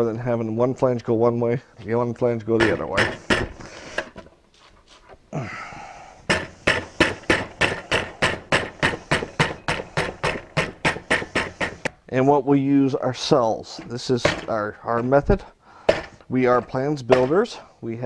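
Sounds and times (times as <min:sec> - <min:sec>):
hand handling noise: 0:01.8 - 0:12.1, 0:13.1 - 0:17.6
hammer tapping on aluminium: 0:02.6 - 0:03.6, 0:06.3 - 0:12.0, 0:15.9 - 0:17.5.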